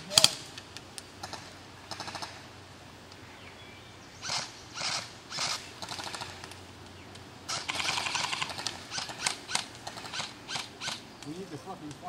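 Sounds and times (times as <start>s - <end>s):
airsoft guns firing rapid clicks: 0.1s - 2.4s, 4.2s - 6.6s, 7.5s - 12.0s.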